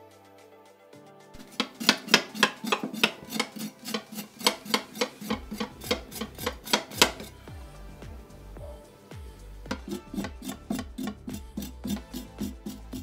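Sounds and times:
knife scraping charred skin: 0:01.4 - 0:07.4, 0:09.8 - 0:13.0
background music with bass: 0:04.3 - 0:13.0.

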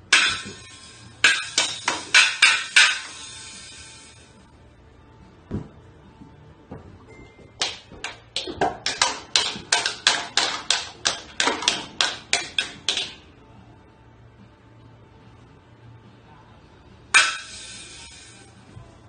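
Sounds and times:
toy drum hits: 0:01.2 - 0:03.2, 0:07.6 - 0:13.2, 0:17.2 - 0:17.8.

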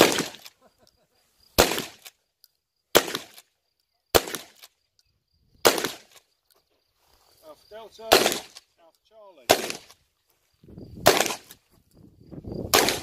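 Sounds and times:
shotgun shots: 0:00.0 - 0:00.5, 0:01.6 - 0:02.1, 0:02.9 - 0:03.4, 0:04.1 - 0:04.7, 0:05.6 - 0:06.2, 0:08.1 - 0:08.7, 0:09.4 - 0:10.0, 0:11.0 - 0:11.6, 0:12.7 - 0:13.0.

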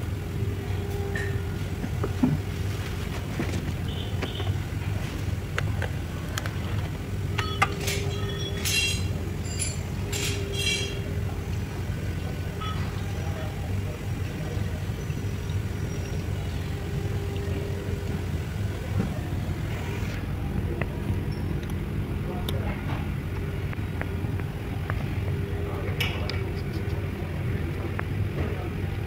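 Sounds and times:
coolant pouring: 0:00.0 - 0:21.4
low mechanical hum: 0:00.0 - 0:29.0
metallic clinks: 0:07.4 - 0:11.0.

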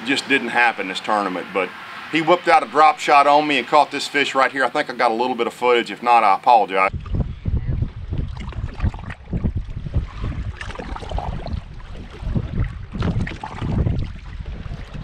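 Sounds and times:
wind buffeting microphone: 0:06.9 - 0:15.0
water lapping against boat hull: 0:07.9 - 0:15.0.

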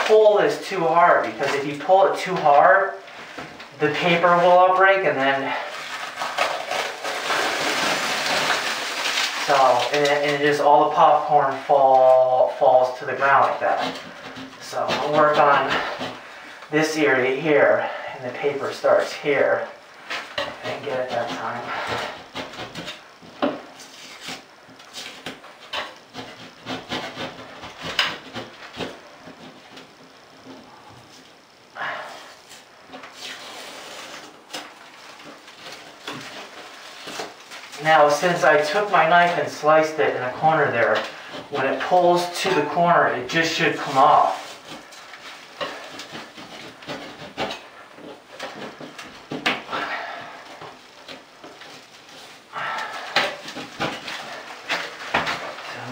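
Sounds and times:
metal scraper scraping ceiling: 0:00.0 - 0:30.8, 0:31.8 - 0:55.9.

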